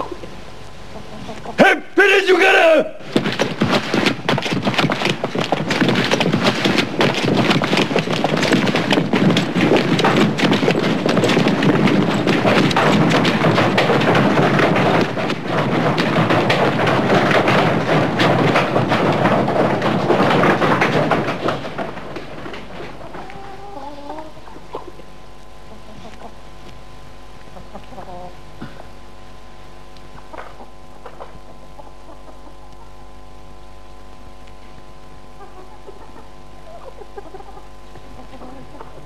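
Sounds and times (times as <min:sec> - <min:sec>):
many footsteps running: 0:02.2 - 0:23.8.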